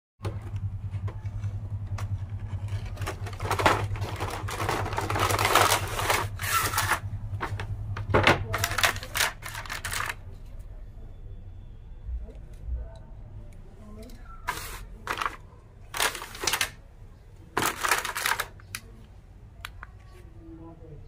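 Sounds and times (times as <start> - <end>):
steady low hum: 0.2 - 21.0
plastic packaging crinkling: 2.7 - 7.1, 8.5 - 10.2, 14.5 - 16.8, 17.5 - 18.9.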